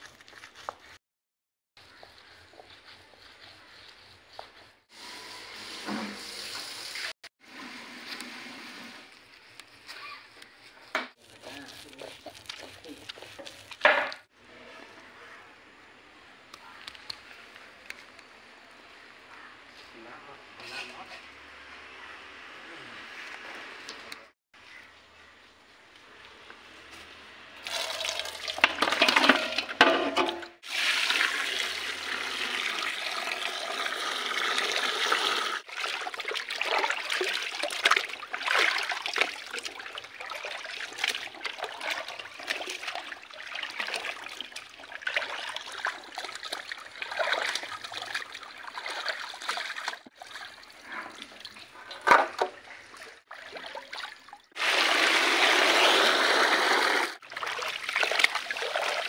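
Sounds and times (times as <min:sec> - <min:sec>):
water pouring: 0:11.2 - 0:14.2, 0:27.6 - 0:59.0
water splashing in a metal pot: 0:27.6 - 0:59.0.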